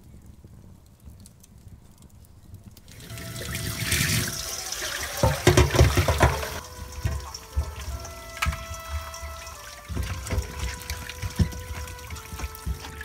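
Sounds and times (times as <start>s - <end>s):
tap water running into steel bowl: 2.9s - 13.0s
hands splashing in bowl: 3.0s - 13.0s.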